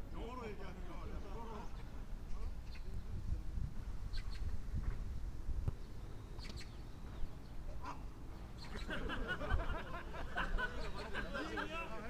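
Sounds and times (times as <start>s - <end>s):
players shouting and calling: 7.7s - 12.0s.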